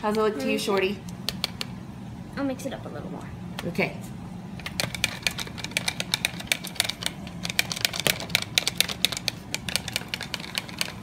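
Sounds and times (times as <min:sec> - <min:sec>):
whisk clicking against plastic jug: 0:04.6 - 0:11.0.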